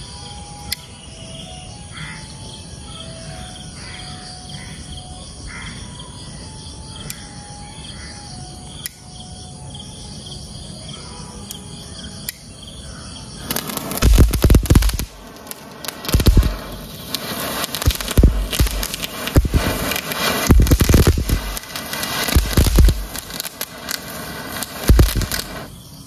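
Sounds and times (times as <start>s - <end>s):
crickets chirring: 0.0s - 26.0s
sparkler crackling hiss: 13.4s - 26.0s
sharp clicks: 13.5s - 25.7s.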